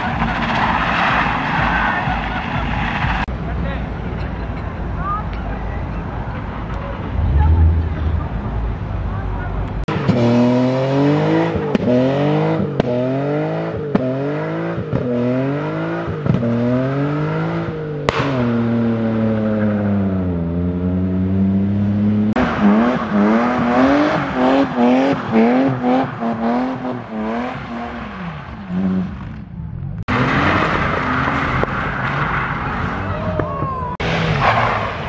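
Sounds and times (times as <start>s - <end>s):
car engine revving: 6.9s - 33.2s.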